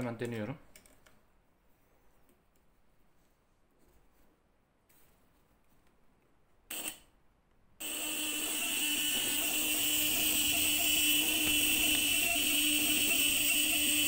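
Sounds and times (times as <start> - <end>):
relay buzzing: 7.8 - 14.0.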